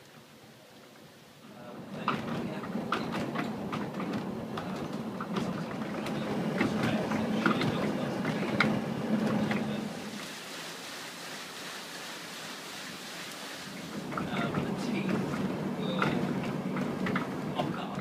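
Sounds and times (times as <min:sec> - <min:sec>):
water rushing: 0:00.0 - 0:18.0
watermill machinery hum: 0:01.4 - 0:10.3, 0:13.7 - 0:18.0.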